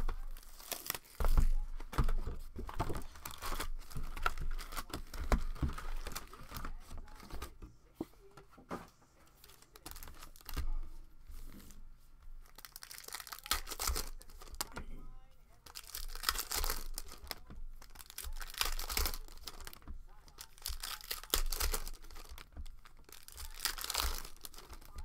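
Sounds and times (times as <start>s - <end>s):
plastic-wrapped packs crinkling: 0.0s - 7.5s, 9.4s - 11.7s, 12.4s - 14.8s, 15.6s - 25.0s
packaging being torn open: 0.3s - 1.4s, 12.5s - 14.7s, 15.7s - 19.8s, 20.4s - 25.0s.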